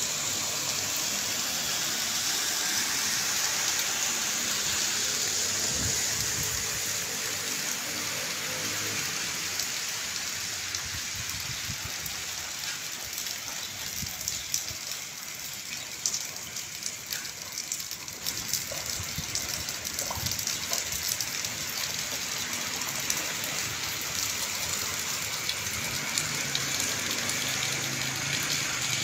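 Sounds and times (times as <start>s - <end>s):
heavy rain on roofs and water: 0.0s - 29.0s.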